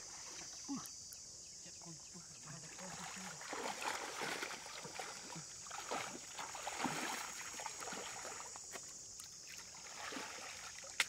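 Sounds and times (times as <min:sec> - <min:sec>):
water splashing and sloshing: 0:02.5 - 0:11.0.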